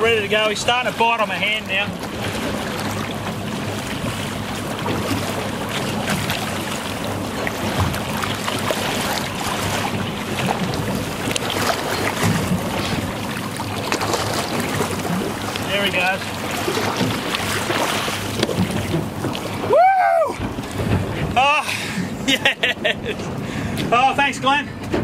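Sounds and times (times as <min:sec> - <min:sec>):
boat engine running: 0:00.0 - 0:25.0
water splashing along hull: 0:00.0 - 0:25.0.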